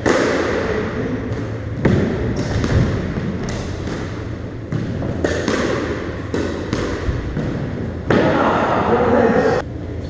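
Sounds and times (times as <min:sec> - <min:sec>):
squash ball hitting rackets and walls: 0:00.0 - 0:08.7.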